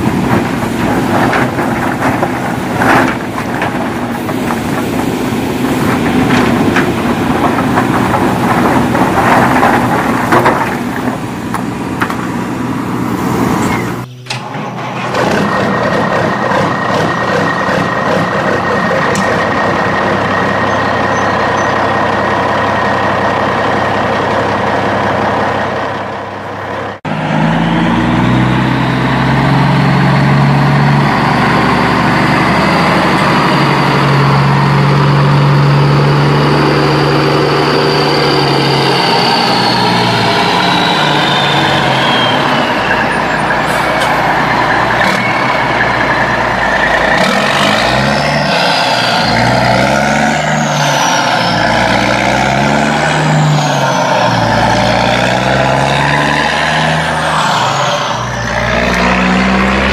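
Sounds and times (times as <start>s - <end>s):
heavy truck engine revving: 0.0s - 59.9s.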